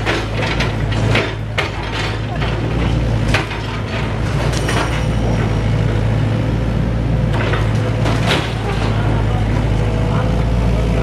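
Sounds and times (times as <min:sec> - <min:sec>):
sharp knocks and clatters of debris: 0:00.0 - 0:05.1
excavator diesel engine running: 0:00.0 - 0:11.0.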